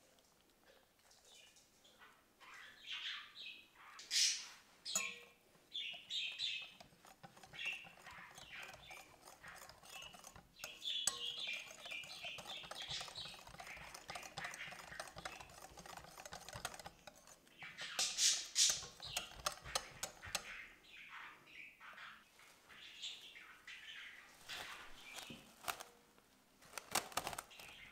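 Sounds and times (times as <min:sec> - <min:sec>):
whisk beating batter in glass bowl: 0:05.8 - 0:20.7.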